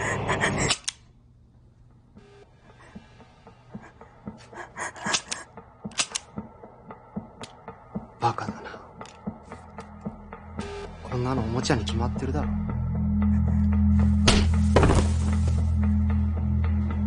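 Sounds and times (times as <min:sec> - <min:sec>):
quiet background music: 0:00.0 - 0:17.0
toy pistol clicking: 0:05.1 - 0:06.3.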